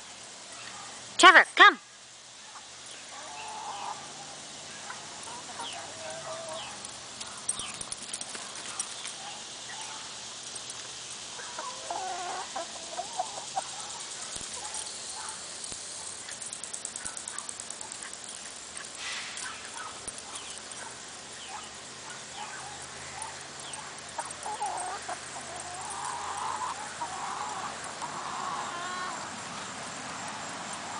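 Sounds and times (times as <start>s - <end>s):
chickens clucking: 4.8s - 7.8s, 9.7s - 29.6s.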